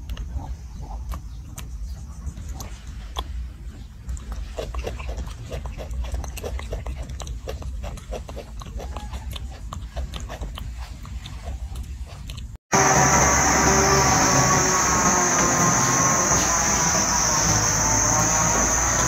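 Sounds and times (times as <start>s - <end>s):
baby monkey suckling: 0.0s - 12.6s
low rumble: 12.7s - 19.0s.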